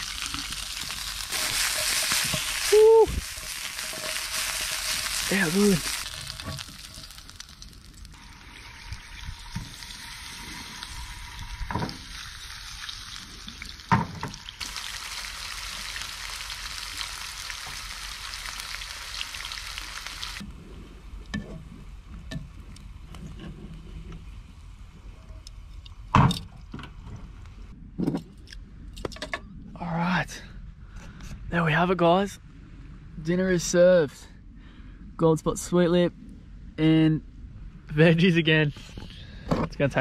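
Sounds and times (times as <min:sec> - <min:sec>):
fish and vegetables sizzling in a pan: 0:00.0 - 0:20.4.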